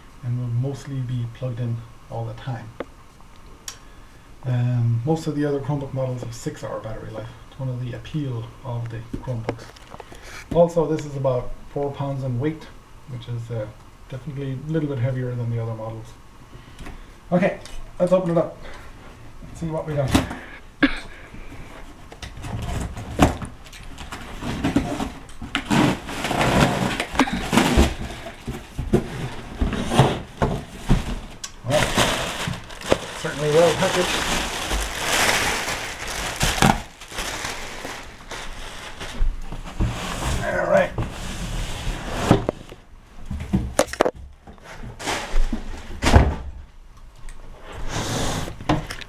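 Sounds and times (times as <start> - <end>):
boxes knocking together: 22.4 - 38.1
cardboard scraping and tearing: 24.0 - 42.7.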